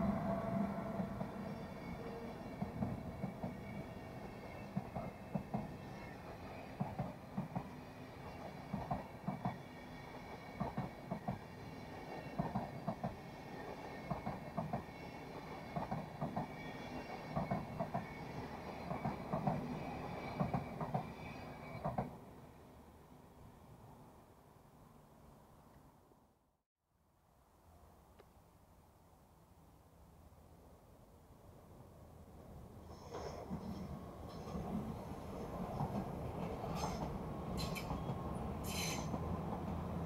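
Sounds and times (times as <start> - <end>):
faint high whine: 0.0 - 5.2
train wheels clicking over rail joints: 0.0 - 21.1, 32.9 - 40.0
train rolling rumble: 0.0 - 22.3, 32.6 - 40.0.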